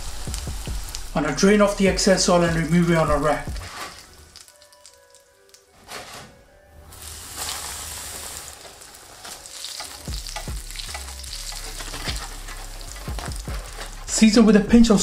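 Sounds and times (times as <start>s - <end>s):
potato cakes sizzling in oil: 0.0s - 1.2s, 6.9s - 14.0s.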